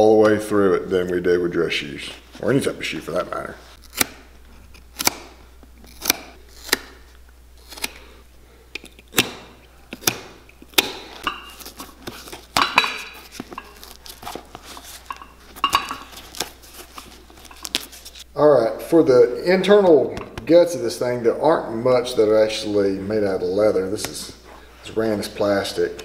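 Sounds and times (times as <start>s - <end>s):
knife scraping leather: 5.9s - 8.1s.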